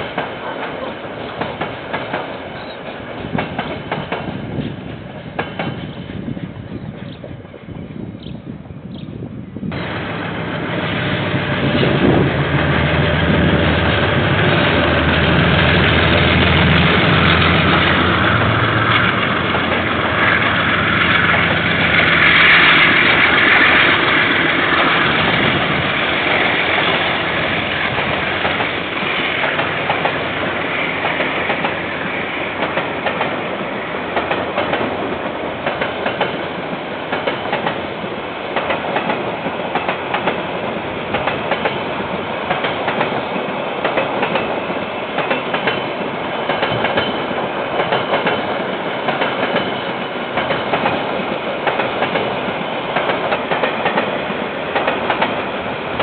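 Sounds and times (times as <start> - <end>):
train wheels clicking on rails: 0.0 - 56.0.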